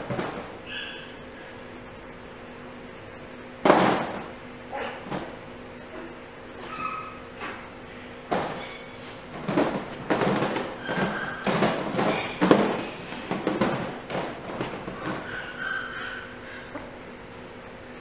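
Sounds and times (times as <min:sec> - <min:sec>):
puppies thumping and scuffling: 0:00.0 - 0:00.9, 0:03.6 - 0:17.5
high-pitched puppy squeaks: 0:06.6 - 0:07.2.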